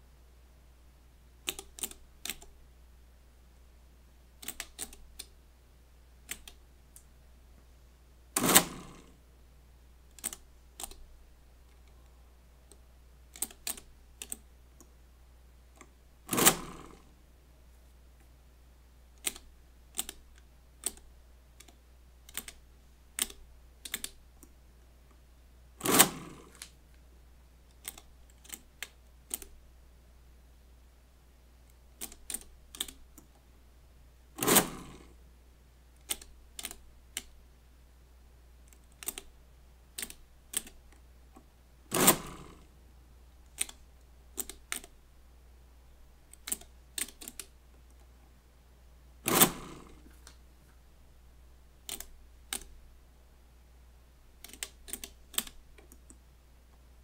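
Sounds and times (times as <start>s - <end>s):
calculator mechanism clattering: 8.4s - 8.9s, 16.3s - 16.7s, 25.8s - 26.6s, 34.4s - 35.0s, 41.9s - 42.5s, 49.3s - 50.1s
calculator key clicks: 23.2s - 24.2s.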